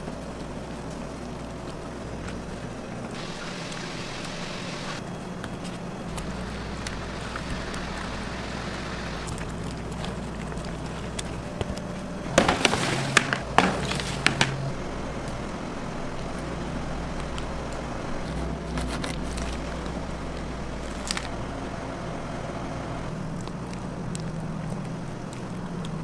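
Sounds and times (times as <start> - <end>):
machinery hum: 0.0 - 26.0
sharp clatters and knocks: 3.1 - 14.8.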